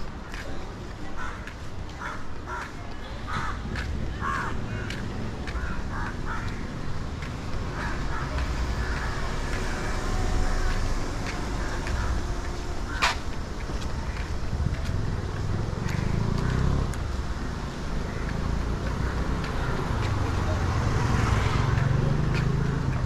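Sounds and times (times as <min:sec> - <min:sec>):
low street rumble: 0:00.0 - 0:23.0
crows cawing: 0:01.2 - 0:06.8, 0:07.7 - 0:09.3, 0:11.5 - 0:12.3, 0:12.9 - 0:13.2, 0:17.4 - 0:19.9.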